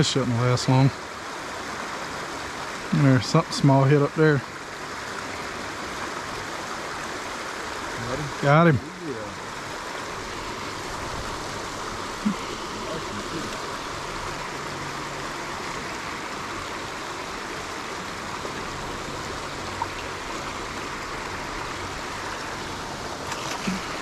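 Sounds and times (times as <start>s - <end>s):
running water: 0.0s - 24.0s
fish splashing: 9.7s - 24.0s.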